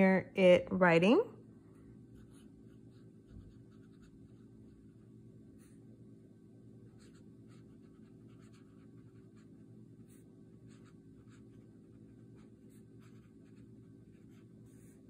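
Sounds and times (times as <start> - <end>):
low steady hum: 0.0 - 15.0
fountain pen scratching on paper: 2.2 - 5.0, 6.9 - 15.0.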